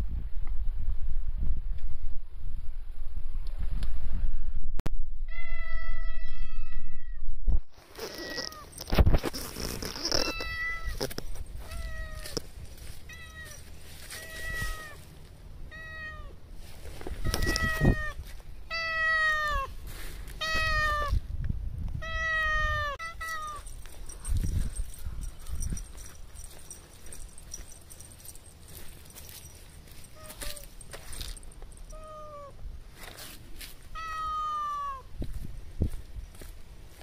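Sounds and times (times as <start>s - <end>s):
cat meowing: 10.1s - 12.4s, 13.1s - 15.0s, 15.7s - 16.4s, 17.2s - 19.7s, 20.4s - 21.2s, 22.0s - 23.6s, 31.9s - 32.6s, 34.0s - 35.1s.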